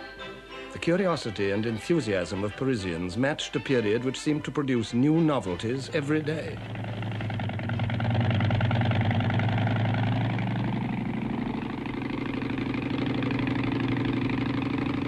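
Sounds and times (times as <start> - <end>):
piston engine low drone: 5.6 - 15.0.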